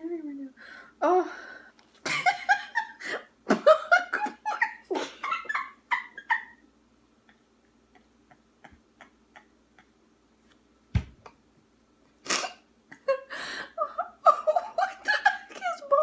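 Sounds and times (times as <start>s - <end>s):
woman laughing: 2.0s - 6.6s, 7.2s - 10.0s, 12.9s - 16.0s
loud thump: 10.9s - 11.3s.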